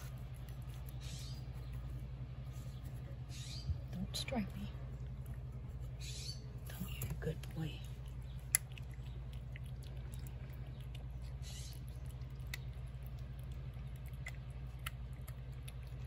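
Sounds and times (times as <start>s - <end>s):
cat chewing and lapping: 0.0s - 3.3s, 4.4s - 16.0s
steady low hum: 0.0s - 16.0s.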